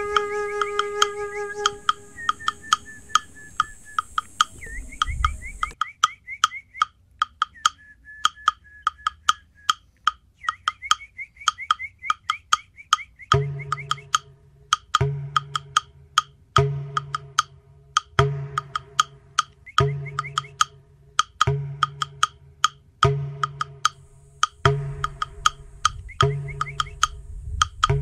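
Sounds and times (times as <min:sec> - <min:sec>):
short high sliding notes: 0:00.0 - 0:04.6
sustained low tones: 0:00.0 - 0:05.8, 0:24.0 - 0:28.0
wood-block percussion beat: 0:00.0 - 0:28.0.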